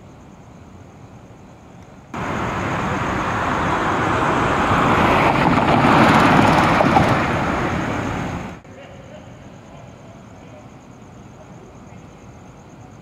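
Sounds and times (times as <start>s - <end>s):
vehicle passing: 2.2s - 8.6s.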